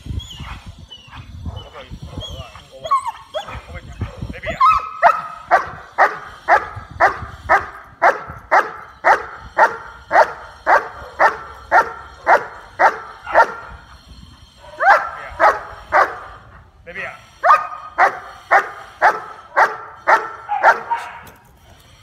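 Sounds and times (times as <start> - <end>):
dog barking: 4.8 - 13.7, 17.4 - 21.2.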